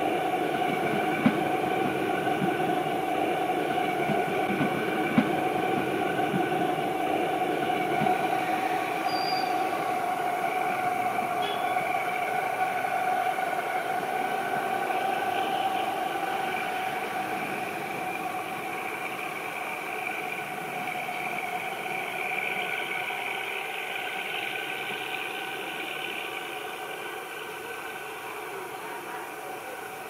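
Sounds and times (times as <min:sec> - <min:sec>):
diesel locomotive engine drone: 0:00.0 - 0:30.0.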